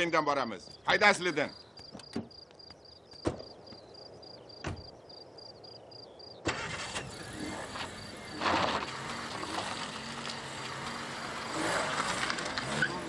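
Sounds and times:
car engine starting: 6.5 - 13.0
tyres on gravel: 6.5 - 13.0.

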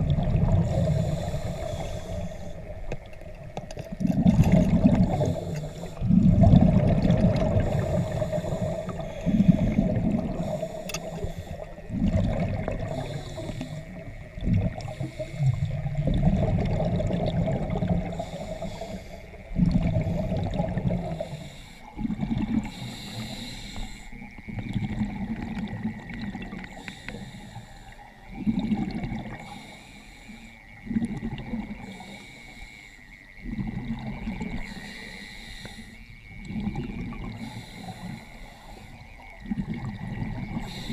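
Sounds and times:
diver breathing through regulator: 0.0 - 2.9, 4.1 - 25.5, 26.6 - 31.0, 31.7 - 39.2, 40.0 - 40.9
exhaled bubbles underwater: 0.0 - 32.4, 33.4 - 40.9.

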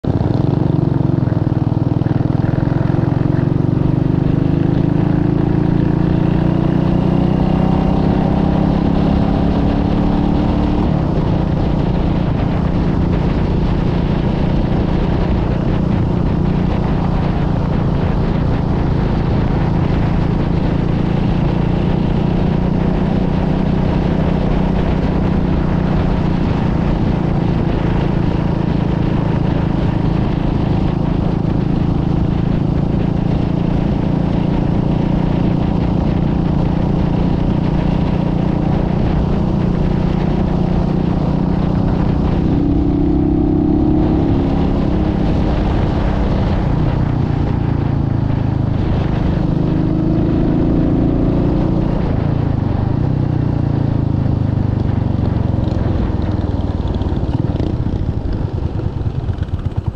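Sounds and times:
motorcycle engine accelerating: 0.0 - 59.9
wind rush on microphone: 0.0 - 59.9.

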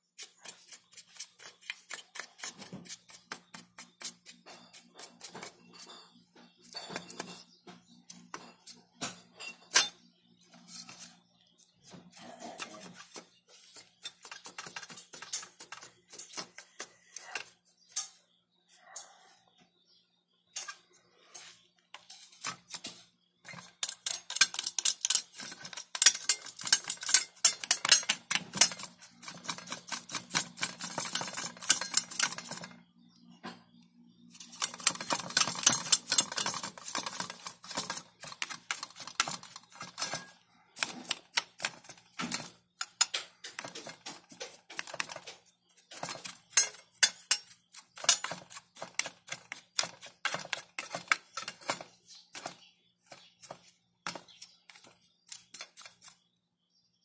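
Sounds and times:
brush bristles scrubbing circuit board: 0.0 - 5.8, 34.4 - 40.2.

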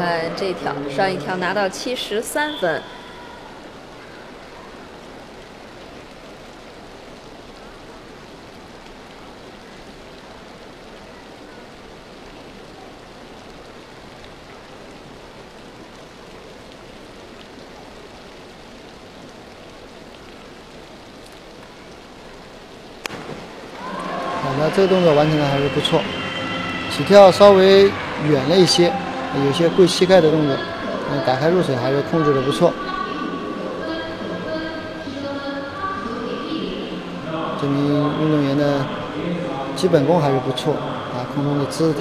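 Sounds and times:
sharp crack: 23.0 - 23.8.

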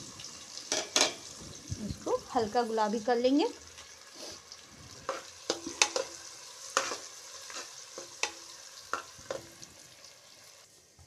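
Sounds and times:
onions sizzling in a pan: 0.0 - 11.0
spoon scraping a pan: 0.6 - 1.3, 3.8 - 9.7.

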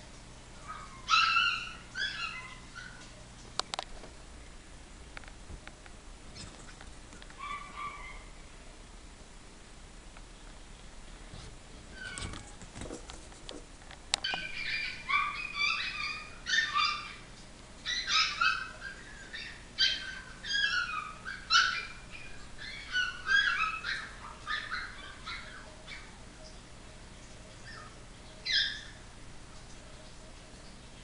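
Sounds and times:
puppies whining and yelping: 0.6 - 3.2, 7.3 - 8.4, 11.9 - 12.6, 14.2 - 26.3, 27.5 - 29.1.

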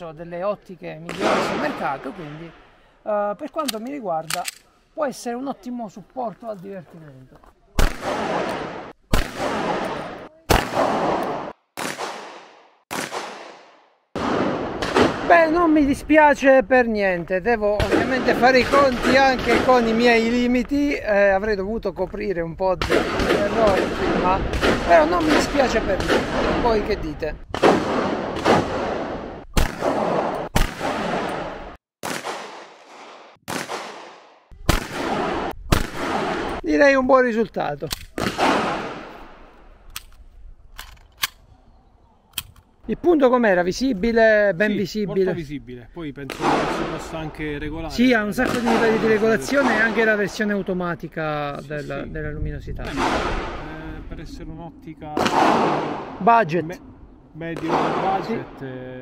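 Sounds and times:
pistol shots echoing: 1.1 - 2.2, 7.8 - 15.3, 17.8 - 20.3, 22.8 - 26.8, 27.6 - 36.6, 38.1 - 39.4, 46.3 - 47.2, 48.4 - 50.3, 52.9 - 53.6, 55.2 - 56.4, 57.6 - 58.6.

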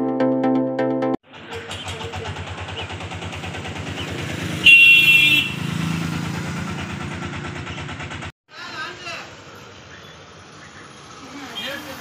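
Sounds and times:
vehicle engine puttering: 1.2 - 8.3
horn honk: 4.6 - 5.9.

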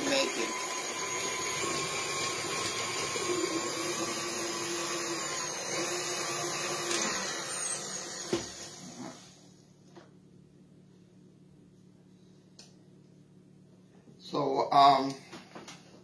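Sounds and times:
stand mixer motor whirring: 0.0 - 9.4.

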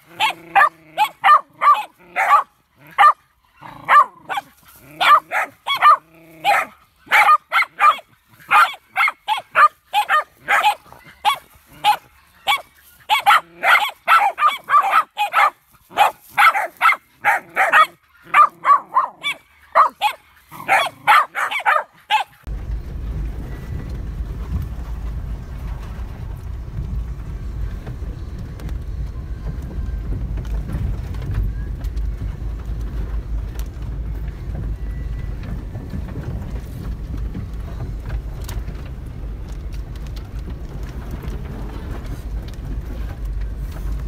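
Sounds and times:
dog barking rapidly: 0.0 - 22.5
vehicle rumble on dirt track: 0.0 - 44.0.

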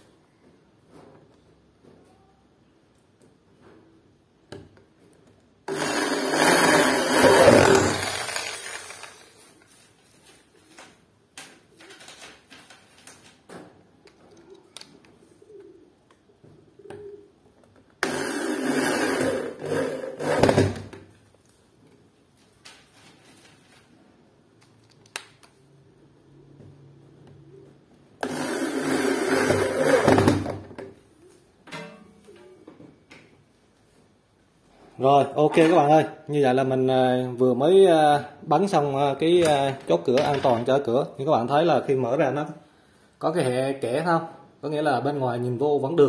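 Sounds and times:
power drill driving screws into metal: 5.7 - 9.3, 18.0 - 20.8, 28.2 - 30.5.

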